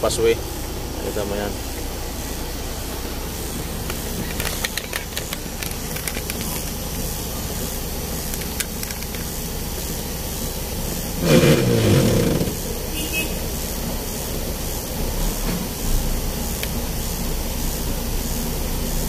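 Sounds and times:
engine idling: 0:00.0 - 0:19.0
engine revving: 0:11.0 - 0:13.2.

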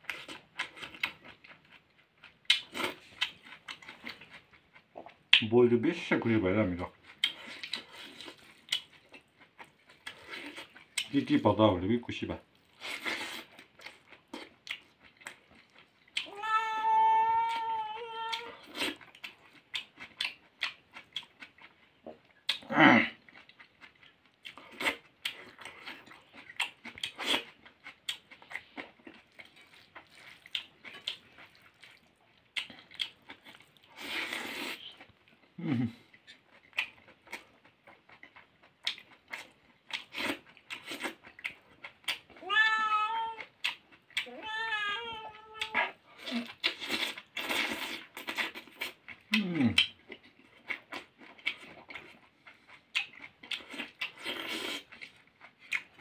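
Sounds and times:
person chewing and lip-smacking: 0:00.0 - 0:05.5, 0:06.8 - 0:11.3, 0:12.6 - 0:16.4, 0:17.3 - 0:42.4, 0:43.1 - 0:56.0
cat meowing: 0:16.2 - 0:18.6, 0:42.4 - 0:43.5, 0:44.2 - 0:46.0.

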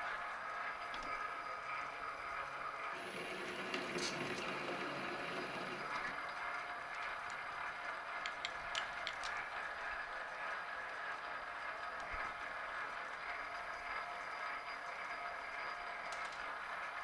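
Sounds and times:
metal lathe whirring: 0:00.0 - 0:17.0.

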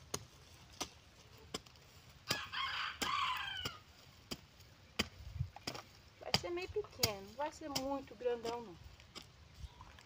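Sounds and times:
garden tool chopping soil: 0:00.0 - 0:09.4
rooster crowing: 0:02.3 - 0:03.8.

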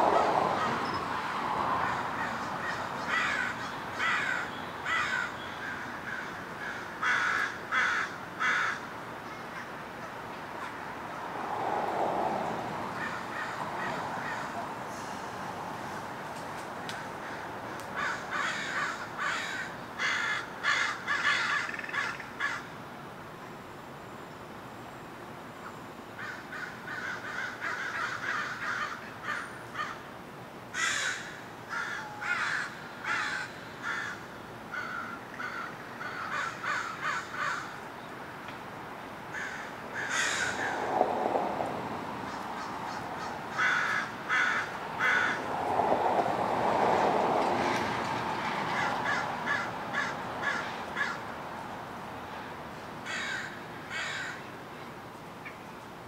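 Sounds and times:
crows cawing: 0:01.8 - 0:09.8, 0:12.9 - 0:14.7, 0:17.0 - 0:22.7, 0:26.2 - 0:30.1, 0:30.8 - 0:37.8, 0:39.3 - 0:40.9, 0:42.3 - 0:45.5, 0:47.5 - 0:51.2, 0:53.0 - 0:54.5.

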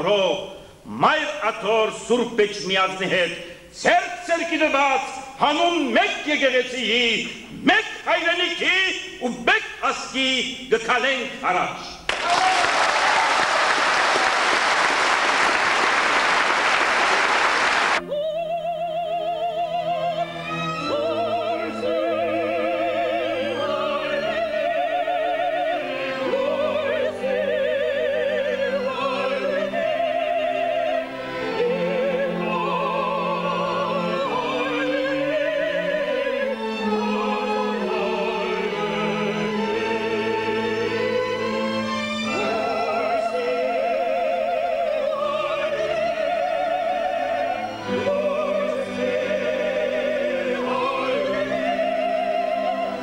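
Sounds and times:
audience applause: 0:12.1 - 0:18.0
vocal ensemble singing: 0:17.6 - 0:53.0
woman singing with vibrato: 0:18.0 - 0:39.4.

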